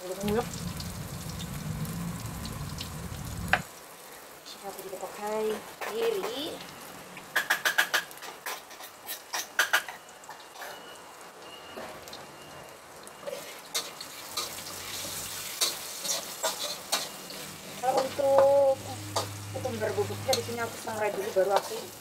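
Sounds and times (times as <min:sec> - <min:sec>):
food frying in hot oil: 0:00.0 - 0:22.0
metal spatula scraping a wok: 0:07.6 - 0:09.8, 0:13.2 - 0:22.0.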